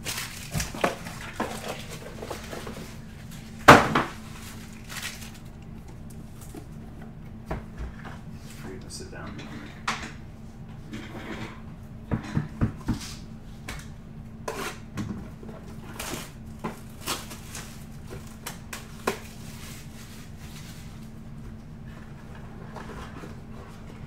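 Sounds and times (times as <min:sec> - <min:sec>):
shrink wrap crinkling and tearing: 0:00.0 - 0:03.6, 0:04.2 - 0:05.7, 0:15.9 - 0:20.9
steady low hum: 0:00.0 - 0:24.0.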